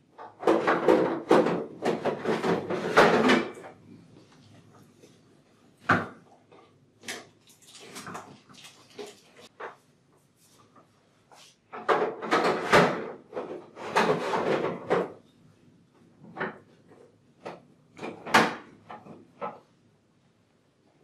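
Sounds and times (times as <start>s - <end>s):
plastic parts clattering and scraping: 0.2s - 3.8s, 11.8s - 15.2s.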